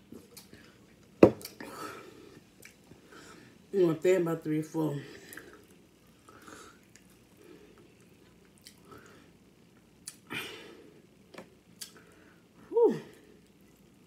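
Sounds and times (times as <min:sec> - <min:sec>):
lip smacks and mouth clicks: 0:00.2 - 0:00.6, 0:08.0 - 0:08.9, 0:10.0 - 0:10.3, 0:11.8 - 0:12.1
person breathing: 0:03.0 - 0:03.6.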